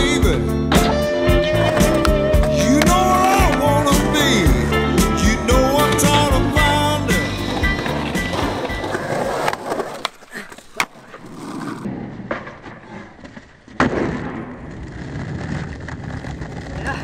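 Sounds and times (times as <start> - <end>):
skateboard wheels rolling on asphalt: 1.3 - 17.0
skateboard clacking on ground: 7.5 - 17.0.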